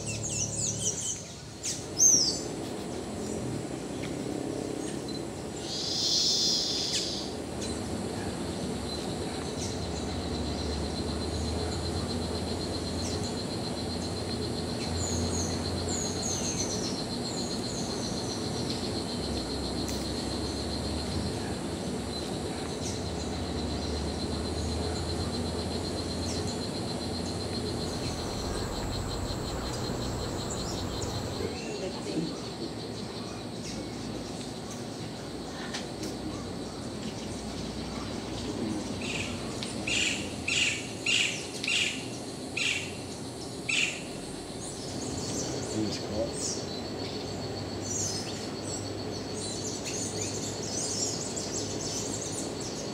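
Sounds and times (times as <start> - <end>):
high-pitched insect trill: 0.0 - 52.9
falling bird chirps: 26.2 - 31.5
low rumble: 27.0 - 31.6.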